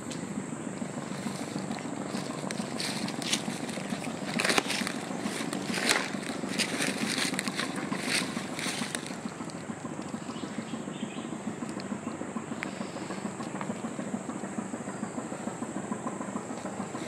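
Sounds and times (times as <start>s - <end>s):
footsteps on dry leaves and twigs: 0.8s - 9.8s.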